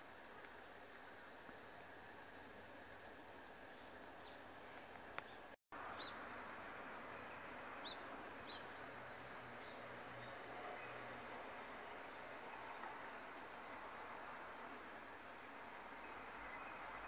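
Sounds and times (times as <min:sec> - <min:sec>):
faint background hiss: 0:00.0 - 0:17.0
sparrows chirping: 0:03.7 - 0:04.6, 0:05.2 - 0:06.3, 0:07.2 - 0:08.9.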